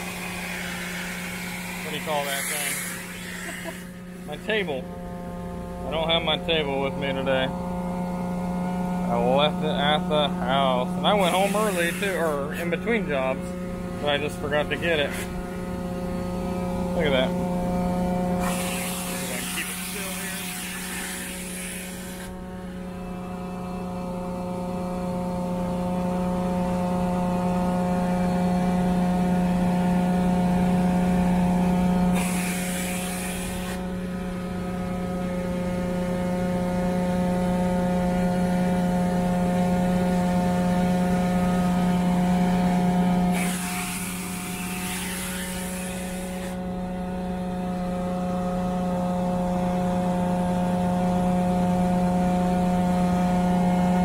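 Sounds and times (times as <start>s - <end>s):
carpet cleaning machine hum: 0.0s - 54.0s
extraction hiss: 1.8s - 3.9s, 11.2s - 12.6s, 18.4s - 22.3s.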